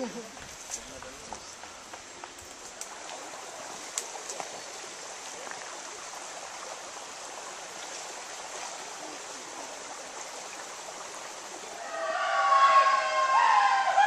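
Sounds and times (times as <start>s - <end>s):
forest stream rushing: 0.0s - 14.0s
people shouting: 11.8s - 14.0s.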